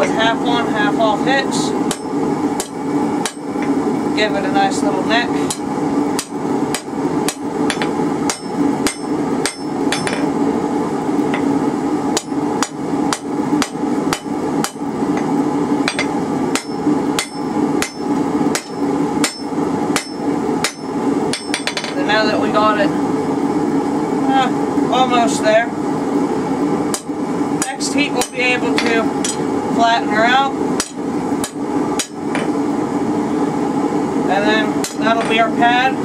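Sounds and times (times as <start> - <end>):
steady low hum: 0.0 - 36.0
hammer striking metal on anvil: 1.9 - 3.5, 5.5 - 10.3, 12.2 - 14.8, 15.9 - 22.0, 26.9 - 29.4, 30.8 - 32.5.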